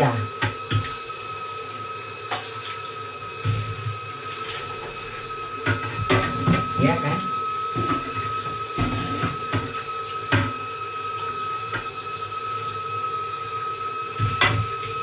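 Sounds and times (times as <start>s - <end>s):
tap water running into sink: 0.0s - 15.0s
dishes clinking against sink: 5.6s - 7.1s, 7.7s - 10.6s, 14.2s - 15.0s.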